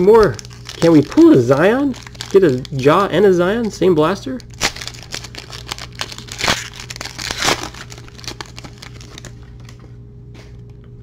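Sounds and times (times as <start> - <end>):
foil wrapper crinkling and tearing: 0.0 - 9.8.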